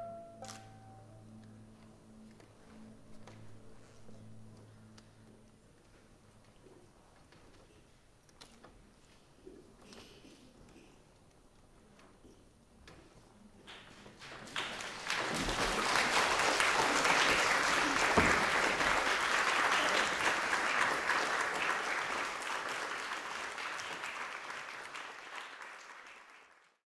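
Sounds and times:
audience applauding: 13.7 - 26.8.

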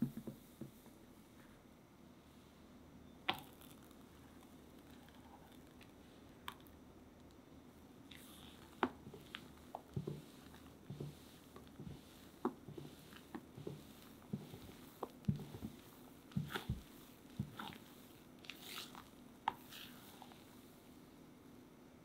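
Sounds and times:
spatula folding batter: 8.0 - 20.9.

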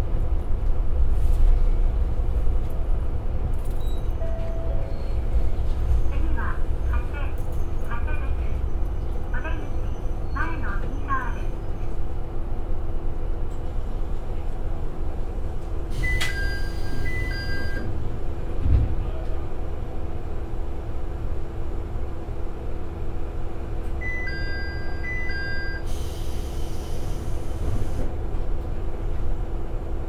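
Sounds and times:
diesel railcar engine idling: 0.0 - 30.0.

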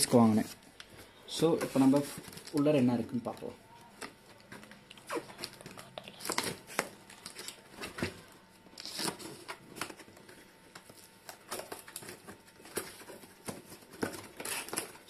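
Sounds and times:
cardboard box crinkling and tearing: 8.8 - 15.0.

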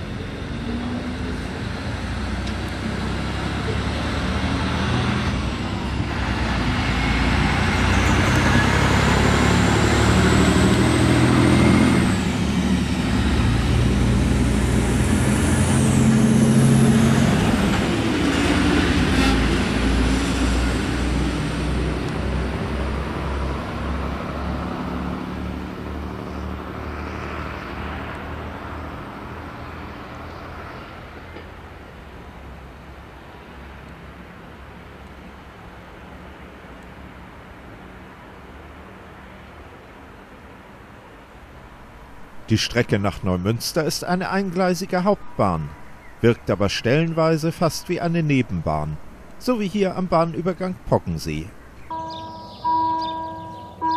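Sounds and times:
high engine whine: 0.0 - 27.3, 47.6 - 53.9
diesel train accelerating: 0.0 - 40.1, 41.3 - 53.9.

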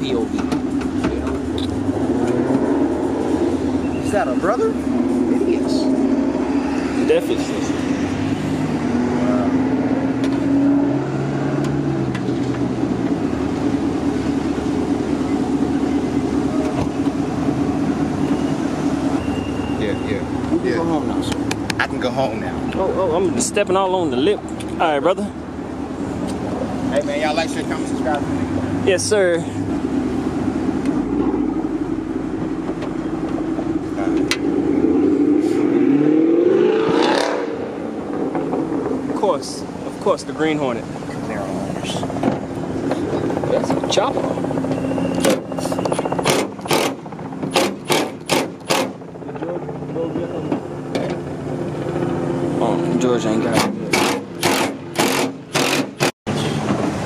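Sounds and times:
car engine revving past: 1.4 - 3.9, 4.6 - 14.0, 33.4 - 39.2
vehicle engine running: 37.1 - 57.0.

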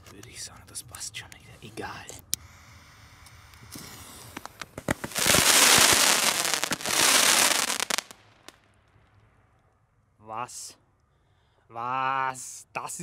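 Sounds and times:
firework cracks: 3.5 - 8.8
dense firework crackling: 3.6 - 8.7
firework pop: 3.8 - 8.1.

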